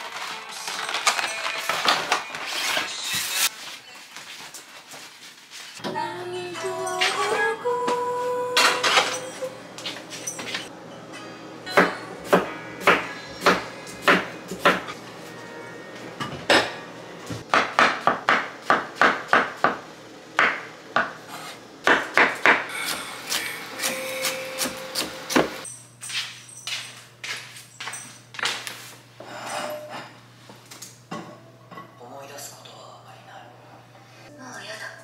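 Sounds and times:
knife chopping on wooden board: 17.5 - 19.8.

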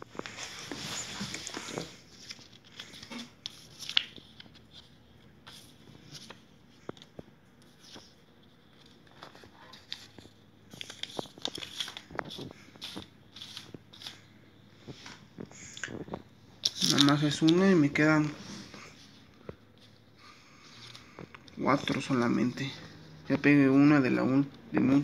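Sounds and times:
paper crinkling and tearing: 0.2 - 4.9, 8.8 - 14.2.

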